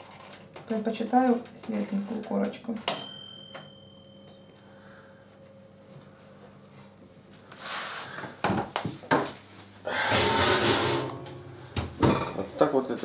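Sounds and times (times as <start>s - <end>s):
faint steady hum: 0.0s - 13.0s
metal baking sheet clattering: 9.9s - 12.5s.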